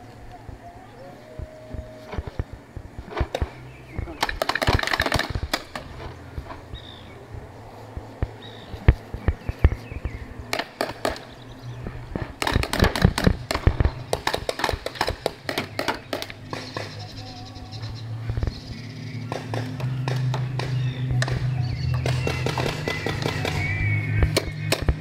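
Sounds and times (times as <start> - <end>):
paintball markers firing: 3.1 - 6.5, 8.2 - 11.4, 12.1 - 17.1, 19.2 - 25.0.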